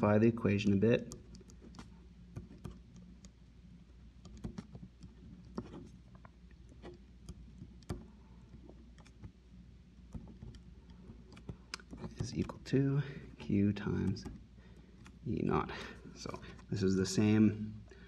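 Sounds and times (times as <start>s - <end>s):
steady low hum: 0.0s - 18.0s
pen scratching on paper: 4.2s - 6.0s.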